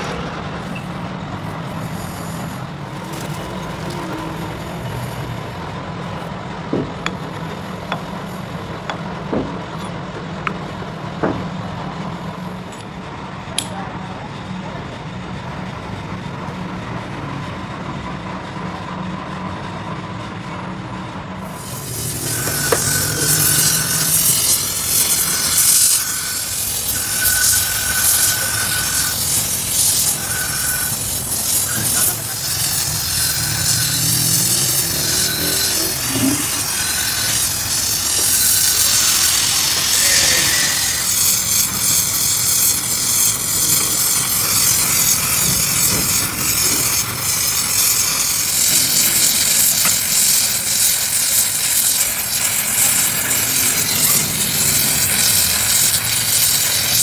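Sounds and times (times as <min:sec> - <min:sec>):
cutting torch flame hissing: 0:00.0 - 0:09.9, 0:21.4 - 0:57.0.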